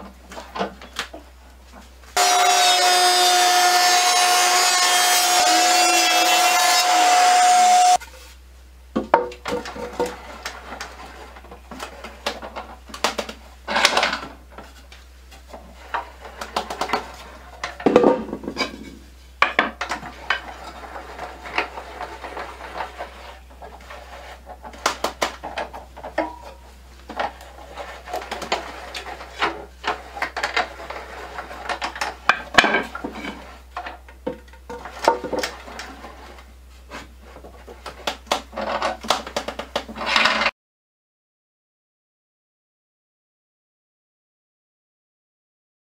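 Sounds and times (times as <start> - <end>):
scraping rubs: 20.0 - 33.7.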